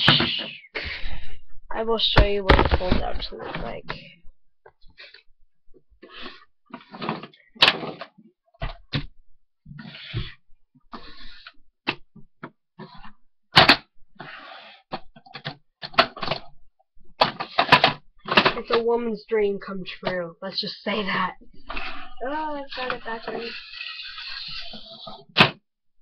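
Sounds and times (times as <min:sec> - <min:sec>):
plastic case clicking and clacking: 0:17.2 - 0:18.8.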